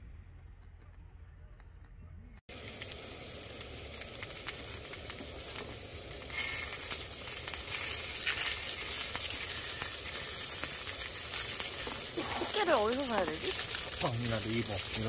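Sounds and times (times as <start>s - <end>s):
food sizzling on a grill: 2.5s - 15.0s.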